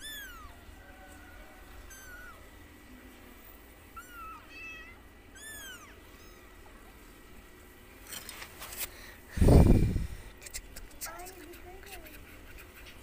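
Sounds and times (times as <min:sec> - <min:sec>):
kittens mewing: 0:00.0 - 0:00.8, 0:01.8 - 0:02.5, 0:03.9 - 0:06.8.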